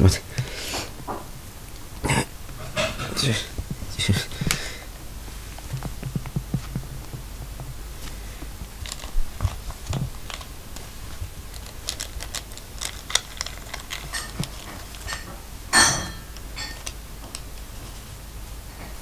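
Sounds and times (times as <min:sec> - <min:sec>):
soft thumps: 0:05.5 - 0:10.1.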